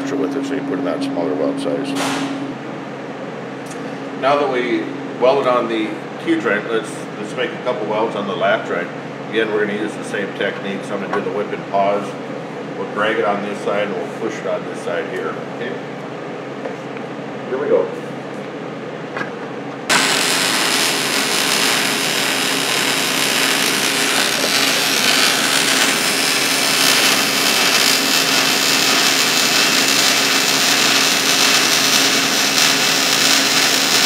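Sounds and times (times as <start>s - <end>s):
welding arc: 19.9s - 34.0s.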